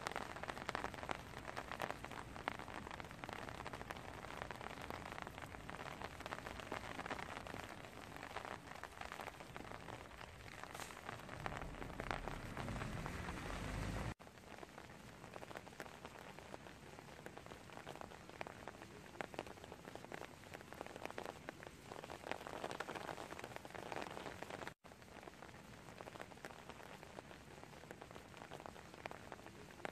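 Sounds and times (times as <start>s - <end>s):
rain drops pattering: 0.0s - 29.9s
low rumble: 10.5s - 14.2s.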